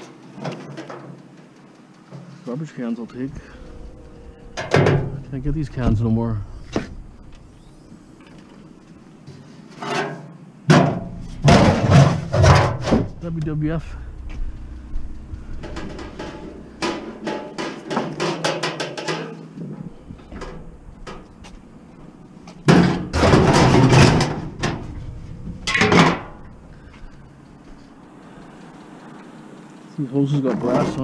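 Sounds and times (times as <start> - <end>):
metal garbage cans clattering: 3.3 - 6.2, 9.8 - 28.0.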